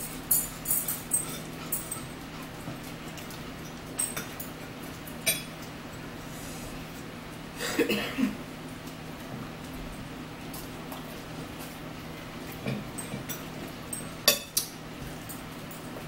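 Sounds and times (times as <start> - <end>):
forks clinking on plates: 0.0 - 2.2, 3.1 - 5.7, 12.6 - 15.9.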